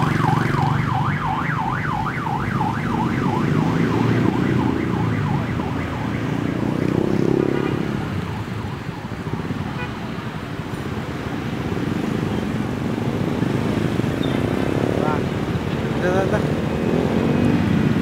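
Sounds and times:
yelp siren: 0:00.0 - 0:10.2.

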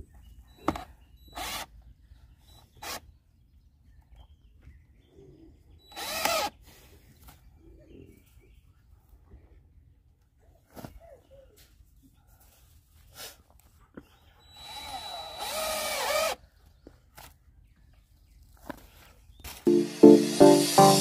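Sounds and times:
power drill driving screws: 0:00.7 - 0:01.7, 0:05.9 - 0:06.5, 0:14.5 - 0:16.4.

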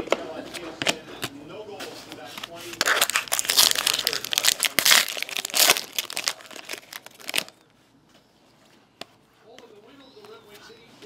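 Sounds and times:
foil wrapper crinkling and tearing: 0:02.7 - 0:07.6.

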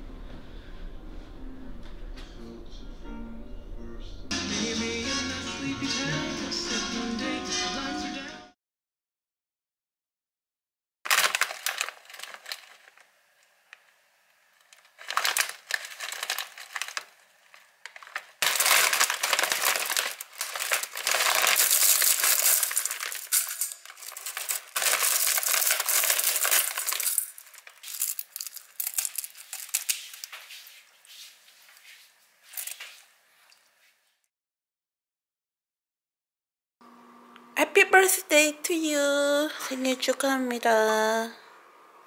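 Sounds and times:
dried seaweed rustling and crunching: 0:11.1 - 0:13.1, 0:14.6 - 0:31.8, 0:32.4 - 0:33.0
plastic bag crinkling: 0:11.1 - 0:13.2, 0:14.6 - 0:33.1.

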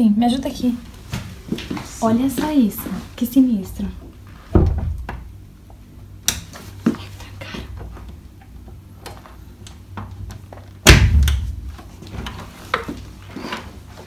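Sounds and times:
door thump: 0:04.5 - 0:05.3, 0:10.9 - 0:11.6.

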